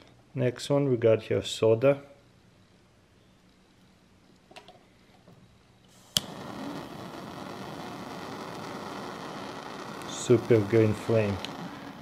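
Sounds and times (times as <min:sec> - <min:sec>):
jet flame hissing: 0:04.9 - 0:12.0
lighter ignition click: 0:06.1 - 0:10.6, 0:11.4 - 0:12.0.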